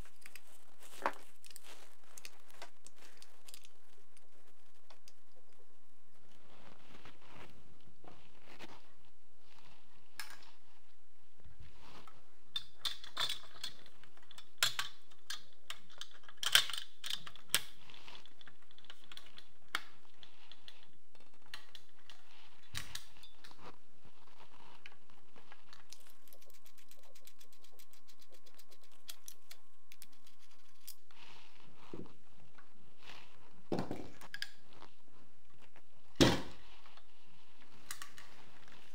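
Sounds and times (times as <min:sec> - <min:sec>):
metal clicks of rifle and tools: 0:12.6 - 0:17.8.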